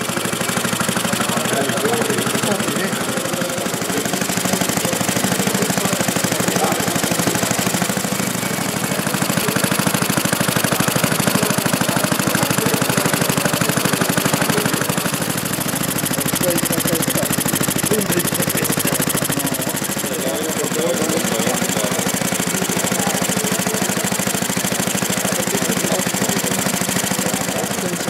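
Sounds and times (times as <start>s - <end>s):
model gas engine running: 0.0s - 28.0s.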